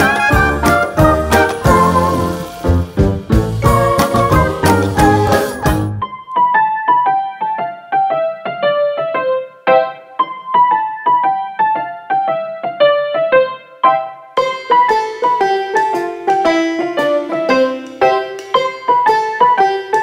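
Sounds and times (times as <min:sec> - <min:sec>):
music with drums and bass: 0:00.0 - 0:06.0
light descending melody: 0:00.0 - 0:06.6.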